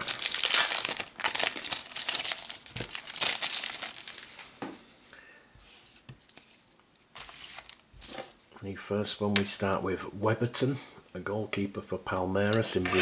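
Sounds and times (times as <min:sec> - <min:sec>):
wrapper crinkling and tearing: 0:00.0 - 0:04.4, 0:06.3 - 0:08.4.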